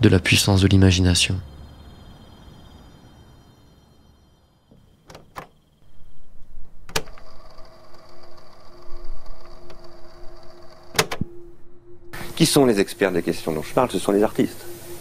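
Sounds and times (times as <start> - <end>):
cassette mechanism clunk: 4.7 - 5.6, 6.8 - 7.2, 10.9 - 11.3
tape mechanism whirring: 6.8 - 11.3
cassette button clicks: 10.9 - 11.3.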